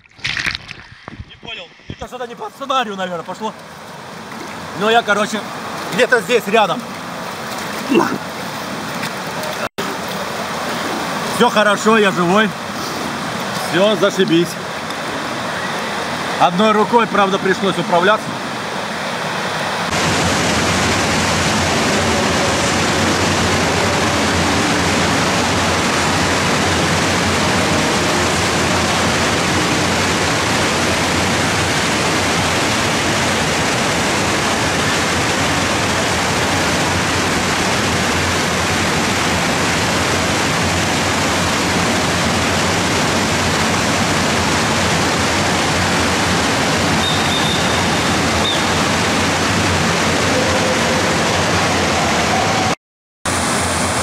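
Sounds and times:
water pouring into pool: 0.0 - 1.9, 19.9 - 51.0.

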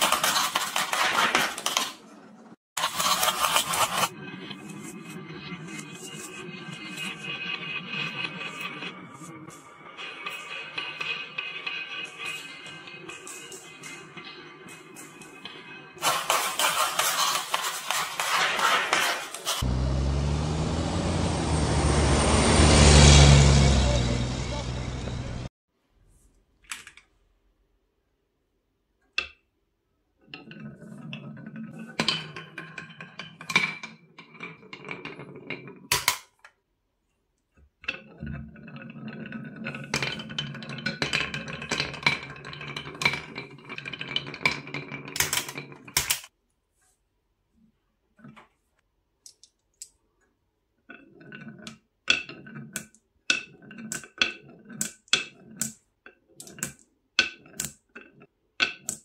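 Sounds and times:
marbles rolling on wooden track: 2.8 - 19.7, 30.3 - 36.2, 37.8 - 46.3, 50.8 - 59.0.

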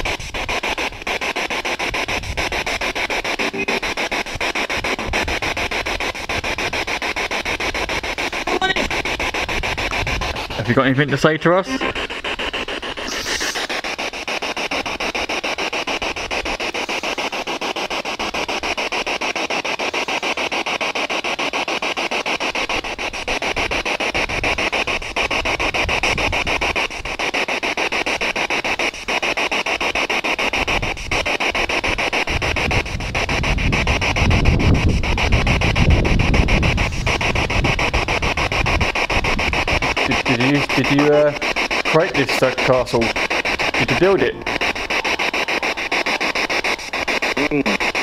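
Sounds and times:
pulsing radio static hiss: 0.0 - 48.0.

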